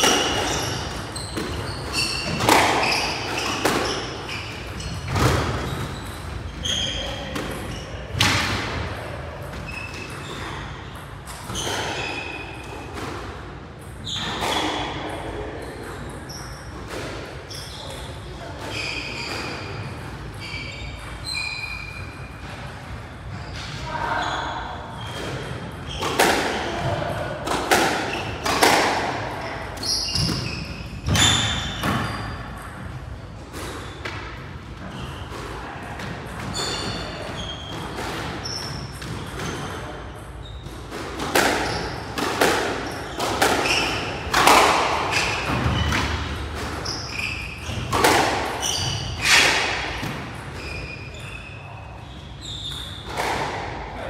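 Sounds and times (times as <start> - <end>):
shoes squeaking on court floor: 0.0 - 13.0, 13.8 - 54.0
squash ball hitting rackets and walls: 0.0 - 54.0.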